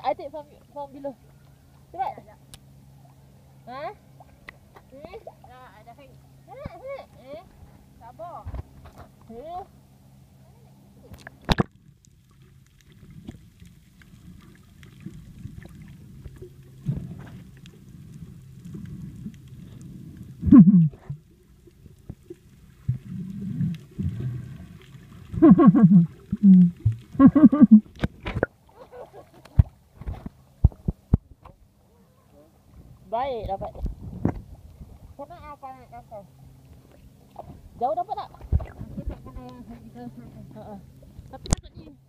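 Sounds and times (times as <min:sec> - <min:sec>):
low underwater hum: 0:00.0 - 0:42.0
muffled voices through water: 0:31.8 - 0:34.0.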